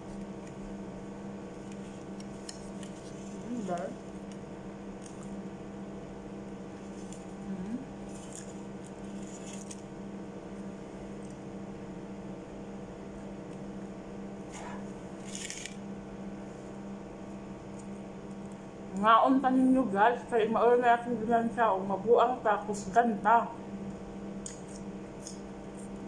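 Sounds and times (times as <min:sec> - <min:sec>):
low hum: 0:00.0 - 0:15.1
person biting and chewing: 0:24.4 - 0:26.0.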